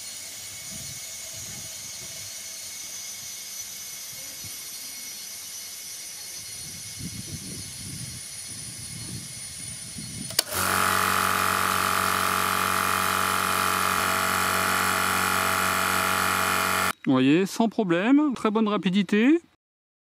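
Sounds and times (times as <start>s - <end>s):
air compressor running: 10.3s - 17.0s
compressor click: 10.3s - 17.0s.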